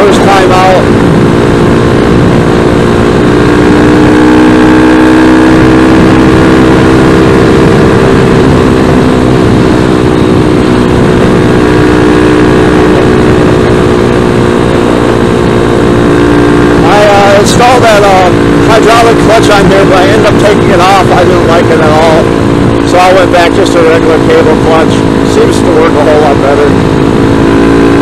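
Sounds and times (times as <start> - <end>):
wind noise on microphone: 0.0 - 17.4
motorcycle engine running: 0.0 - 28.0.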